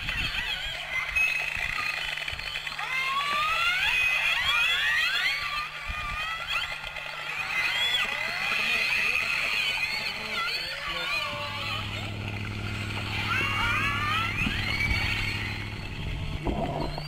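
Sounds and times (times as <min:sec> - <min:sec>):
orca whistles and calls: 0:07.0 - 0:17.0
steady low hum: 0:10.8 - 0:17.0.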